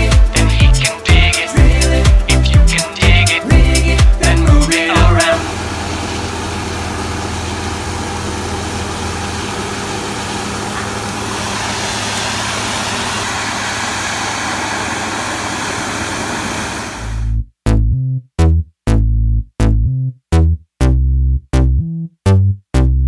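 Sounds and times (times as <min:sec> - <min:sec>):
low engine hum: 0:03.5 - 0:17.4
compressed air rushing: 0:05.4 - 0:17.3.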